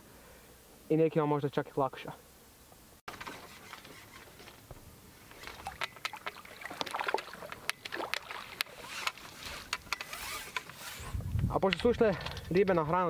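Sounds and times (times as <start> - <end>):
faint hiss: 0.0 - 5.5
fishing tackle clicking: 5.4 - 10.8.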